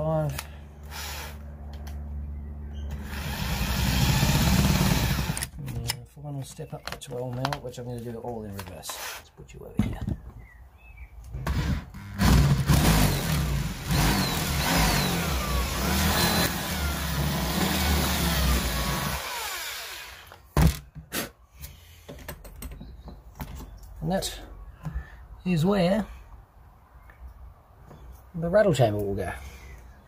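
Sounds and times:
electric drill boring into wood: 0.8 - 1.4, 2.9 - 5.5, 11.4 - 20.4.

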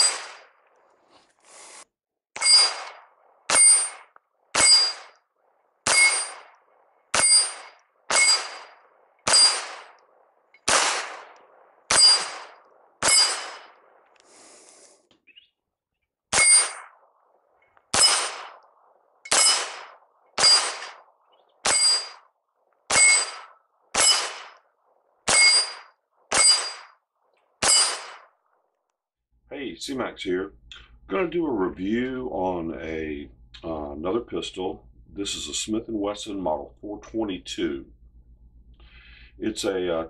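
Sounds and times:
metallic ring of steel targets: 0.0 - 0.6, 2.4 - 5.2, 5.8 - 10.0, 10.6 - 13.8, 16.3 - 17.0, 17.6 - 18.6, 19.3 - 22.3, 22.9 - 24.6, 25.3 - 27.0, 27.6 - 28.4
pistol shots: 0.0 - 0.6, 2.4 - 5.2, 5.8 - 14.0, 16.3 - 17.1, 17.9 - 22.3, 22.9 - 24.6, 25.3 - 27.0, 27.6 - 28.4.

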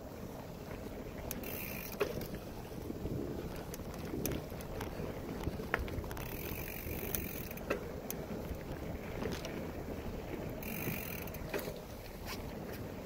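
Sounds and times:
bicycle tyre rumbling on dirt: 0.0 - 13.0
bike clicks and rattles: 0.0 - 13.0.

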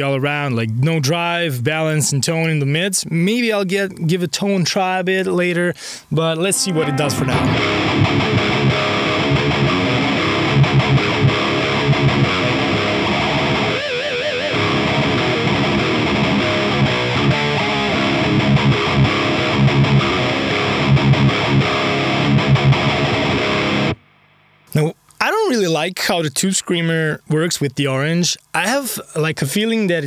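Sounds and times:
distorted electric guitar riffs: 6.4 - 24.9.

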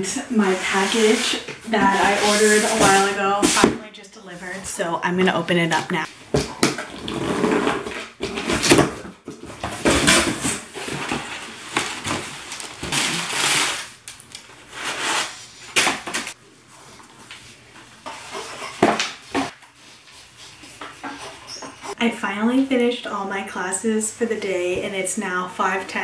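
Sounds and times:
paper rustling and tearing: 9.6 - 16.4.

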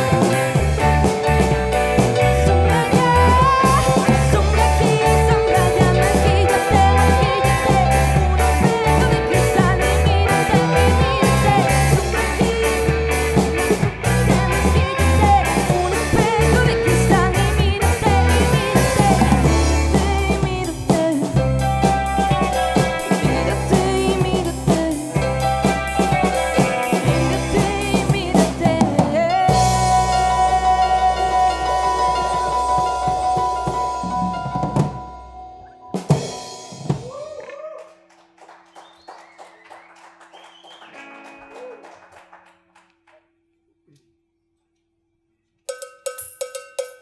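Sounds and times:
drum kit beat: 0.0 - 35.4, 36.0 - 37.4
live rock band: 0.0 - 37.2
man singing: 14.2 - 21.3, 27.3 - 33.6.

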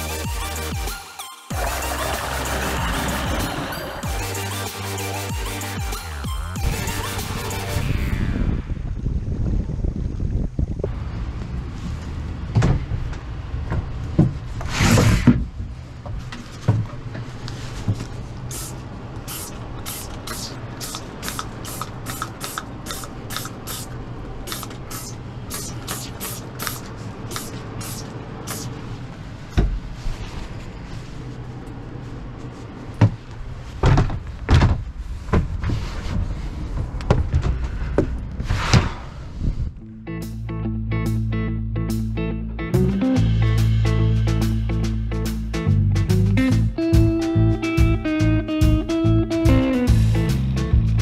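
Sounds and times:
spray bottle squirting: 18.5 - 28.7
handling knocks and bumps: 33.0 - 33.2, 33.8 - 35.7.

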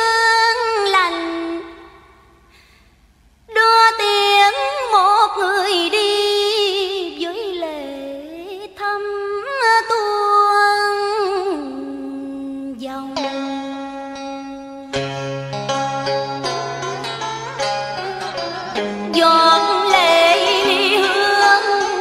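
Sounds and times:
woman singing ornamented melody: 3.5 - 14.6, 16.8 - 22.0.

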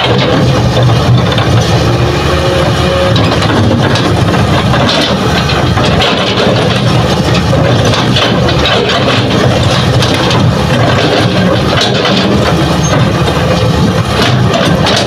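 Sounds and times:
diesel engine under load: 0.0 - 15.0.

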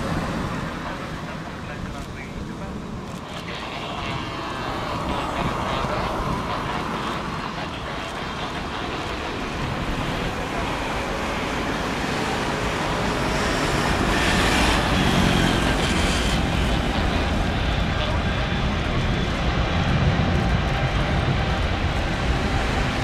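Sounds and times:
jet engines at takeoff thrust: 0.0 - 23.0.

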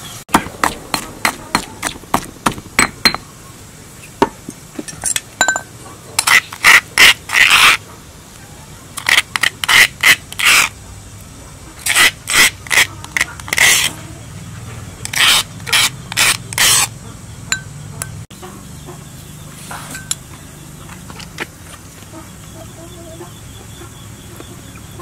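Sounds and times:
metal spoon scraping stone mortar: 0.6 - 3.2, 4.8 - 7.8, 9.0 - 10.8, 11.8 - 14.0, 15.0 - 16.9, 19.7 - 20.2.

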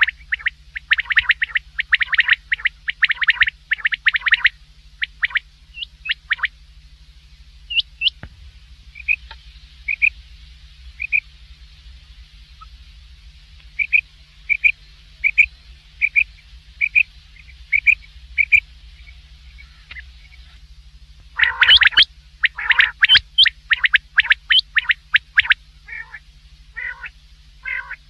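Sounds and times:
quail calling: 0.0 - 6.6, 7.7 - 8.2, 8.9 - 10.2, 11.0 - 11.3, 13.7 - 20.7, 21.3 - 28.0
faint low hum: 0.0 - 28.0.

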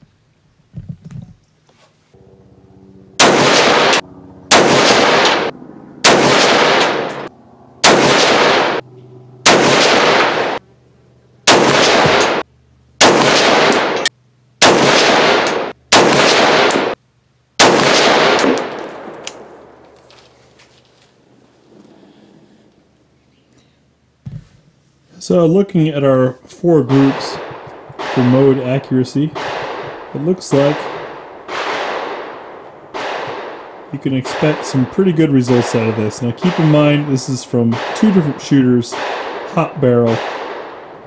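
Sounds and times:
rifle shots: 3.2 - 8.8, 9.4 - 10.6, 11.5 - 12.4, 13.0 - 17.0, 17.6 - 19.8, 26.9 - 41.0.

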